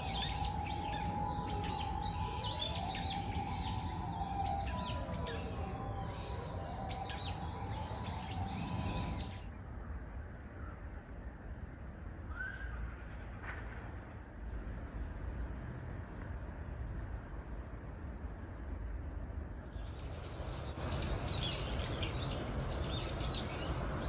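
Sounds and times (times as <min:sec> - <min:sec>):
birds chirping: 0:00.0 - 0:09.5, 0:19.7 - 0:24.0
low whistled bird glides: 0:00.0 - 0:09.9, 0:12.3 - 0:14.0
steady low rumble: 0:00.0 - 0:24.0.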